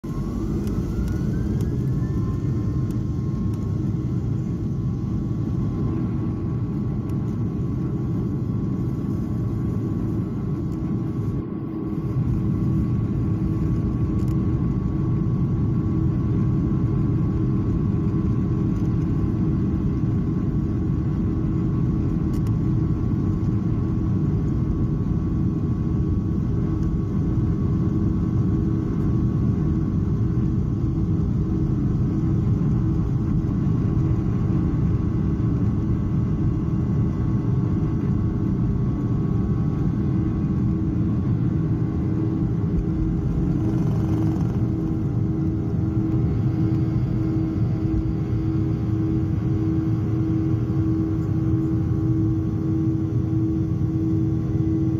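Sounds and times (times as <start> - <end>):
whining tones: 0.0 - 4.9
jet engines roaring: 0.0 - 15.2, 38.1 - 54.9
wheels rumbling on runway: 42.4 - 47.3.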